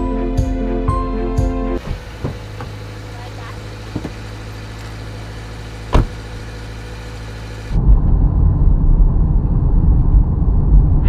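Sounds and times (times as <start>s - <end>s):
low hum: 0.0s - 11.0s
engine and road noise in car: 0.8s - 11.0s
car door shutting: 1.8s - 6.7s.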